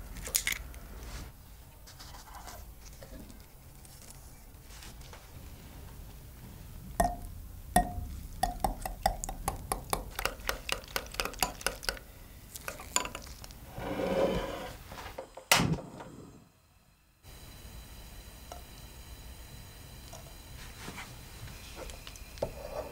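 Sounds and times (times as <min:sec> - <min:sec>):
whisk clinking against glass bowl: 0:09.9 - 0:12.0.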